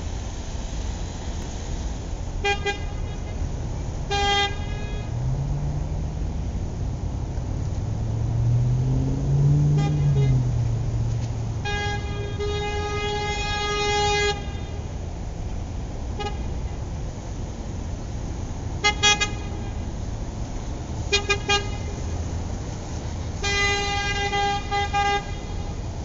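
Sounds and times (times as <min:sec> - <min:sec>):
steady low rumble: 0:00.0 - 0:13.8
car horn honking: 0:02.4 - 0:03.4, 0:04.0 - 0:05.3, 0:09.6 - 0:14.9, 0:16.2 - 0:16.8, 0:18.8 - 0:19.9, 0:21.1 - 0:22.0, 0:23.4 - 0:25.8.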